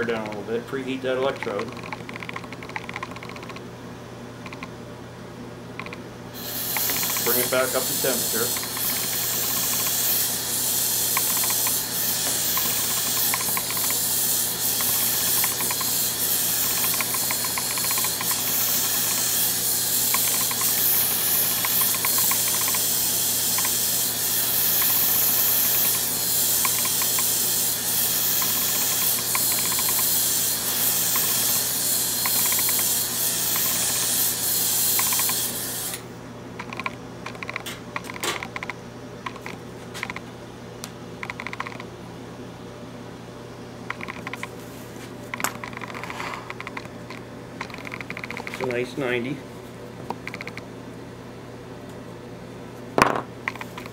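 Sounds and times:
hand torch hissing: 6.4s - 35.6s.

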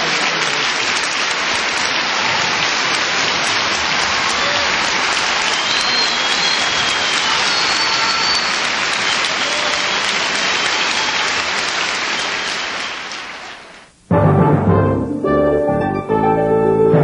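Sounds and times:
audience applauding: 0.0s - 13.8s
orchestral music with timpani: 14.1s - 17.0s.

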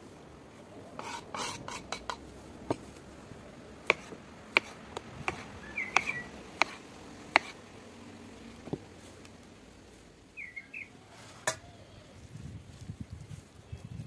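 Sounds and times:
knife chopping on wooden board: 3.9s - 7.6s
bird chirping: 5.6s - 6.4s, 10.3s - 11.0s.

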